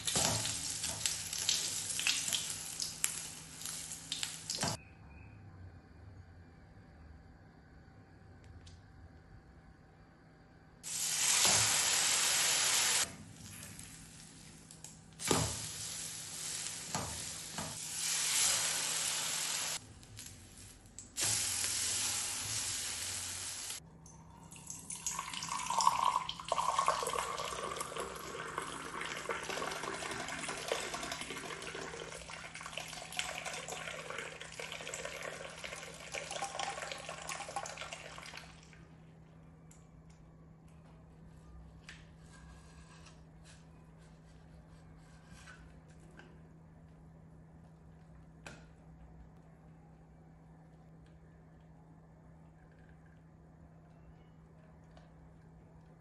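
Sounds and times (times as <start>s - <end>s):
steady hissing noise: 10.8s - 23.8s
liquid pouring into a glass mug: 24.2s - 38.5s.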